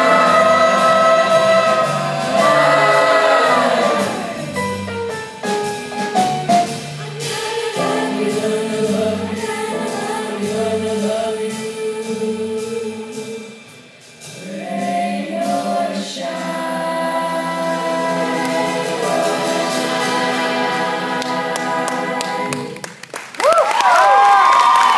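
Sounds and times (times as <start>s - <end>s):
choir singing in close harmony: 0.0s - 4.6s, 7.0s - 13.6s, 14.3s - 22.9s.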